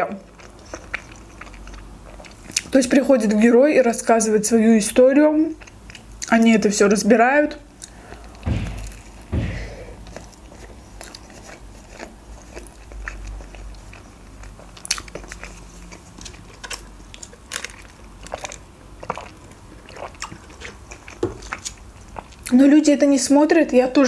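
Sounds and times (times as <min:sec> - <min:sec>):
soft chewing: 0:00.1 - 0:03.3, 0:05.5 - 0:06.4, 0:10.1 - 0:22.6.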